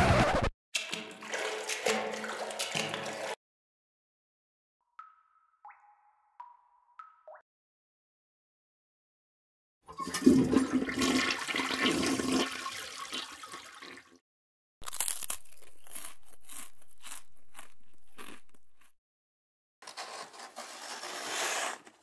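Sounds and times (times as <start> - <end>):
toilet flushing: 1.0 - 3.4, 9.9 - 14.2.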